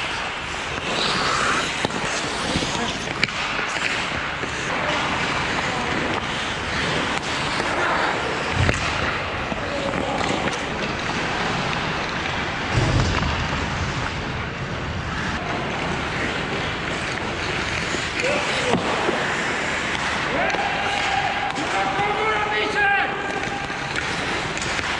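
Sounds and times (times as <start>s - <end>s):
skate blades scraping on ice: 0.0s - 12.8s, 13.4s - 22.5s, 23.1s - 24.9s.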